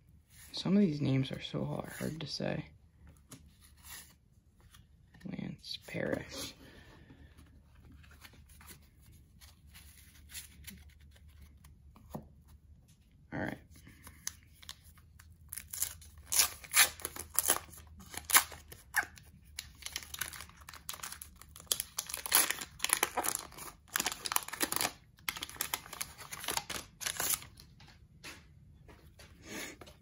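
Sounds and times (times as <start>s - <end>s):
wrapper tearing and crinkling: 15.5s - 27.6s.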